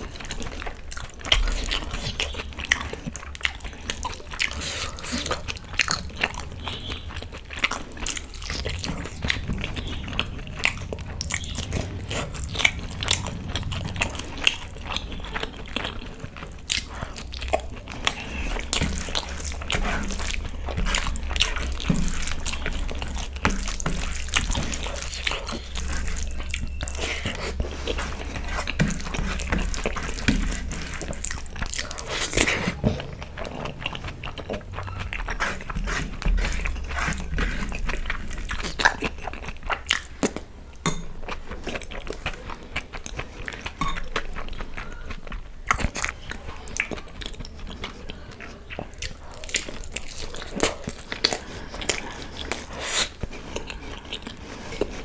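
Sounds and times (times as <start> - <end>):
chewing with wet mouth clicks: 0.0 - 55.0
low hum: 5.6 - 38.8.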